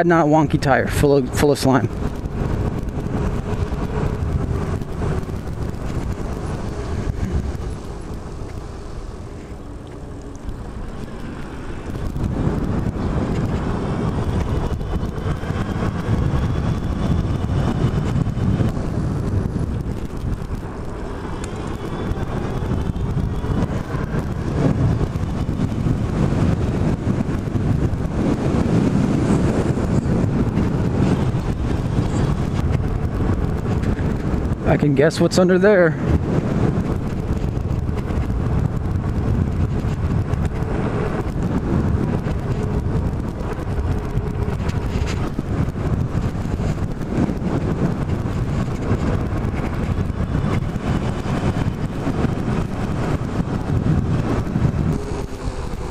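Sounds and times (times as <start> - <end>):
street traffic: 0.0 - 55.9
wind on microphone: 0.0 - 55.9
faint rising whines: 54.1 - 55.9.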